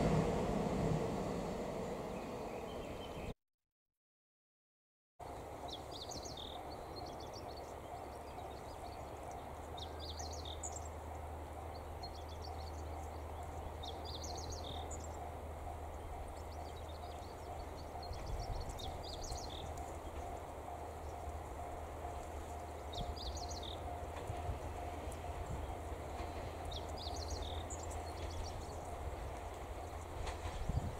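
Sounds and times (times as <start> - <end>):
steady low rumble: 0.0 - 3.3
songbird chirping: 1.6 - 3.4, 5.3 - 30.9.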